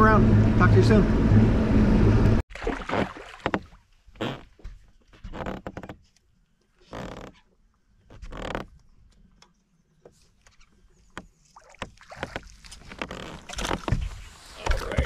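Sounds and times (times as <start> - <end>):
fish thrashing and splashing: 2.5 - 3.8, 11.4 - 15.0.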